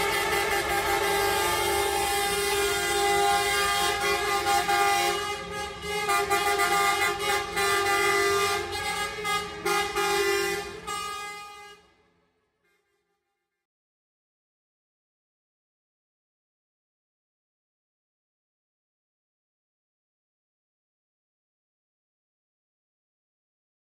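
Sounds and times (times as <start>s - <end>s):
bus horns honking: 0.0s - 13.3s.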